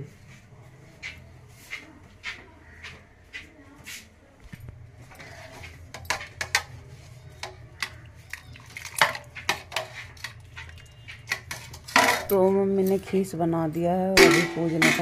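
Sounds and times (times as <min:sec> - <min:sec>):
steel ladle clinking metal pot: 0:05.1 - 0:13.4, 0:14.1 - 0:15.0.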